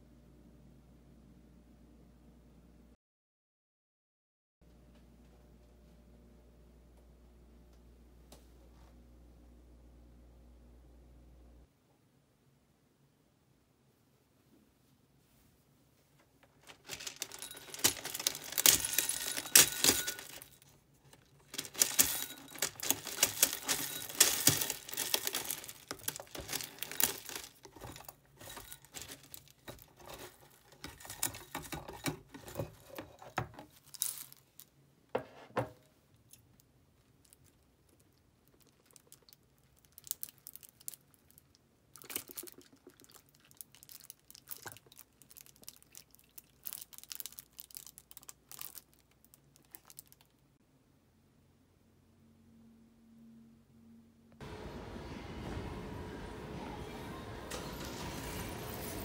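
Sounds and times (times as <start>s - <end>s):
soft clicks and rustles: 14.5s - 34.7s
cereal rattling into ceramic bowl: 16.6s - 20.6s, 21.4s - 34.6s.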